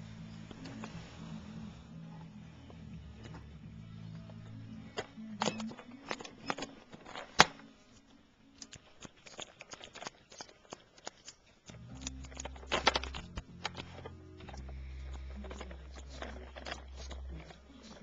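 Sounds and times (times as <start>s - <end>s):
low steady hum: 0.0s - 9.0s, 11.5s - 18.0s
plastic clicks and clatter: 4.9s - 7.6s, 8.6s - 18.0s.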